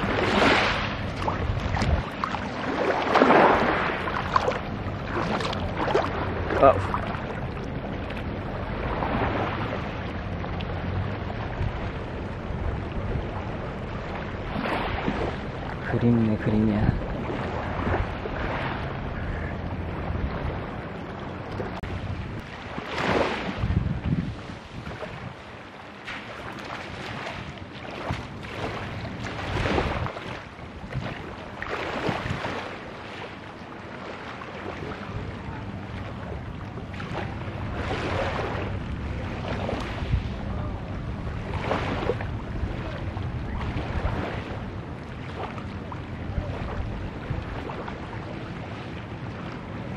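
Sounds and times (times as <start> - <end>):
small waves lapping on pebbles: 0.0 - 7.3
wind on microphone: 0.0 - 33.4, 34.6 - 49.9
small waves washing ashore: 0.0 - 49.9
water sloshing from wading: 0.0 - 49.9.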